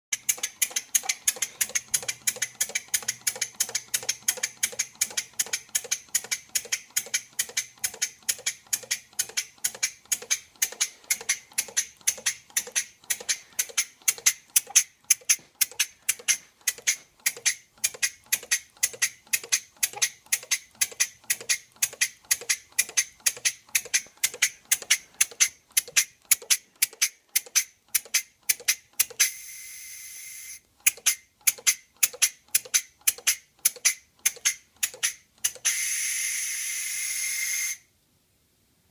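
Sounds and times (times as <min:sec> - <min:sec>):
steam engine puffing: 0:00.2 - 0:30.4
steady steam hiss: 0:35.7 - 0:37.8.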